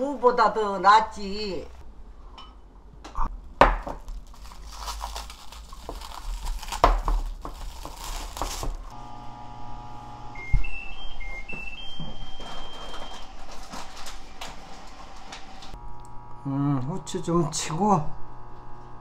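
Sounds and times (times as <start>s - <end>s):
low electrical hum: 0.0s - 19.0s
crinkling and crackling: 4.0s - 8.9s, 12.4s - 16.1s.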